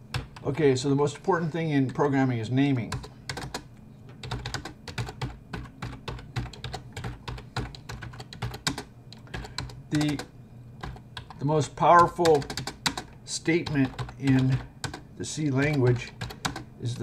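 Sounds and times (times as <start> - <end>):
typing on computer keyboard: 2.9 - 11.4, 12.0 - 15.0, 15.6 - 16.7.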